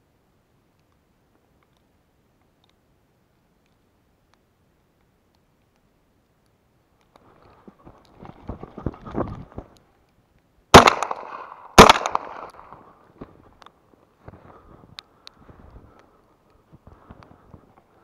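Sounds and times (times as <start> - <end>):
shotgun shots: 10.7 - 12.8.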